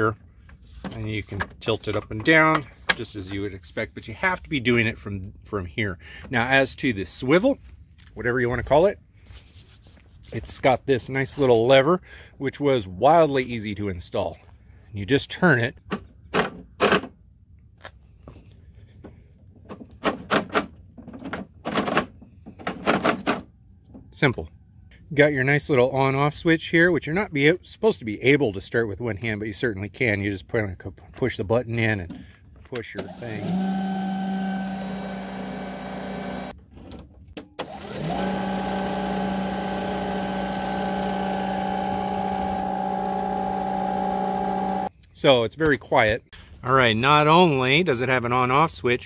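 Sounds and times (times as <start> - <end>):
electric snowblower motor whining: 33.0 - 36.6, 37.6 - 44.9.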